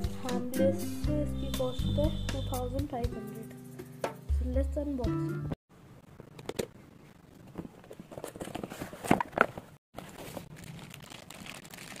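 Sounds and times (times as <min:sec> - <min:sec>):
plastic packaging crinkling: 0:10.0 - 0:12.0.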